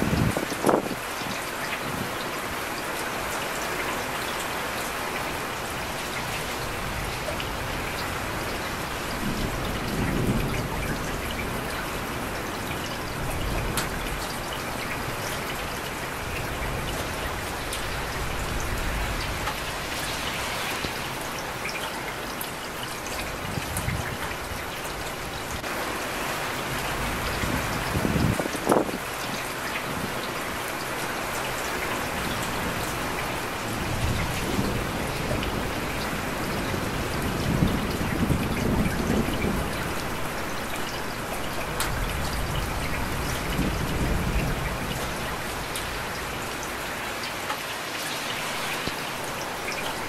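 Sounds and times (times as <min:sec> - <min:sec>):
heavy rain pouring: 0:00.0 - 0:50.0.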